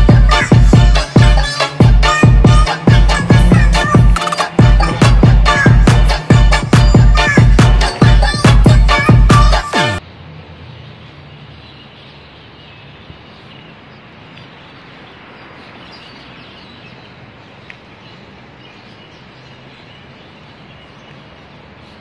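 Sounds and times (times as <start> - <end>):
distant traffic hum: 0.0 - 22.0
small birds chirping: 10.5 - 22.0.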